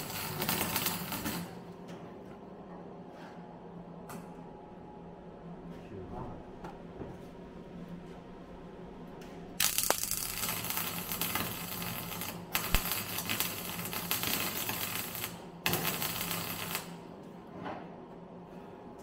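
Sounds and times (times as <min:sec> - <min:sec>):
welder arc crackling: 0:00.0 - 0:01.6, 0:09.6 - 0:17.1.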